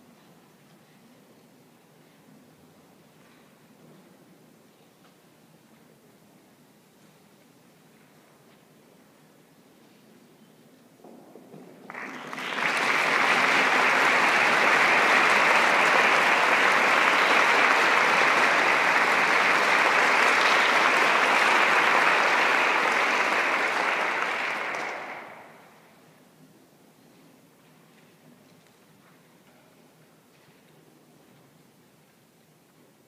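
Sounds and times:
audience applauding: 11.9s - 25.8s.

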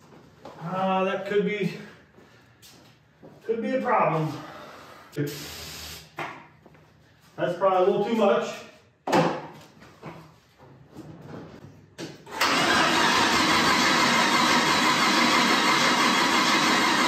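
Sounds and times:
starter cranking engine: 12.3s - 17.0s.

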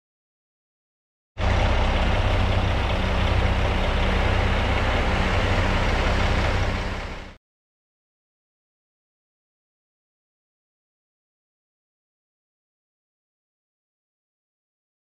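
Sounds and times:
diesel engine rumbling: 1.4s - 7.4s.

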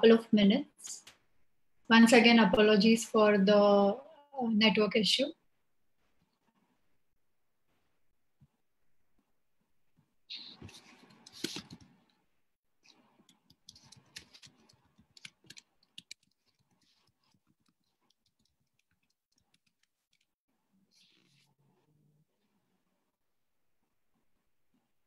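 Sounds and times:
typing on computer keyboard: 13.3s - 20.3s.

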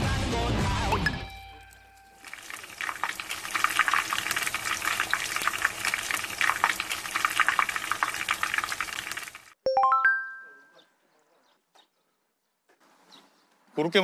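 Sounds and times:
music: 0.0s - 2.0s
croquettes deep-frying in oil: 2.1s - 9.6s.

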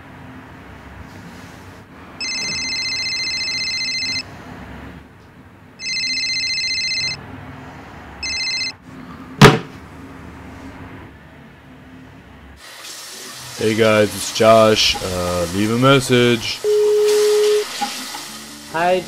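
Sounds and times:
trilling phone ringtone: 2.2s - 4.3s, 5.8s - 7.3s, 8.2s - 8.8s, 16.6s - 17.7s
phone thud on wooden nightstand: 9.4s - 9.7s.

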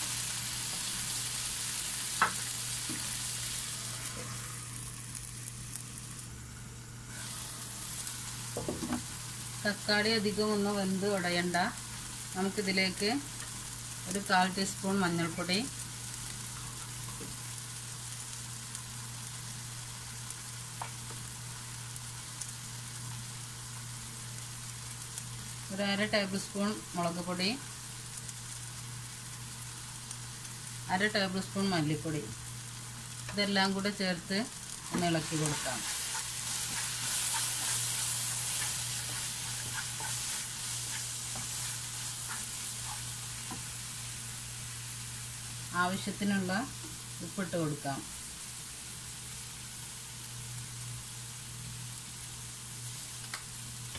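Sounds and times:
vegetables sizzling in oil: 0.0s - 53.9s
spatula scraping pan: 34.8s - 43.7s.

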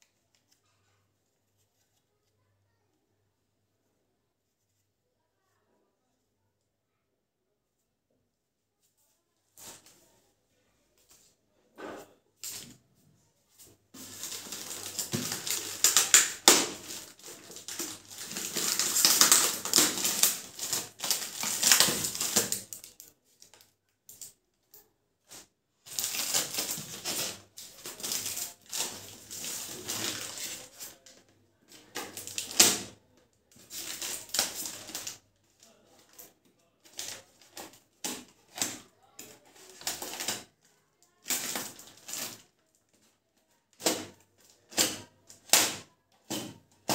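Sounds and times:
plastic bag and tape crinkling: 13.5s - 46.9s.

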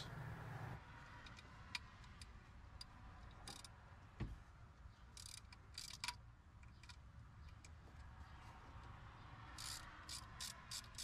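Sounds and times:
ratchet wrench clicking: 3.4s - 3.7s, 5.2s - 7.0s, 9.5s - 11.0s.

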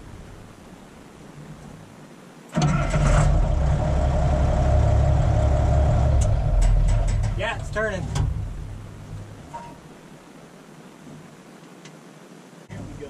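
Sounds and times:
tractor engine starting and running: 2.5s - 9.6s.

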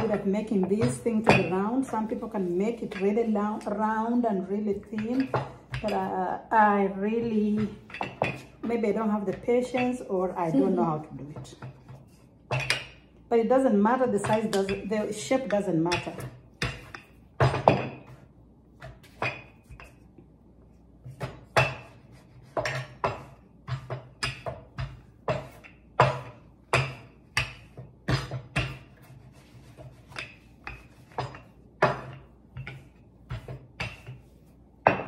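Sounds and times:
rolling pin knocking on wooden board: 21.0s - 35.0s.

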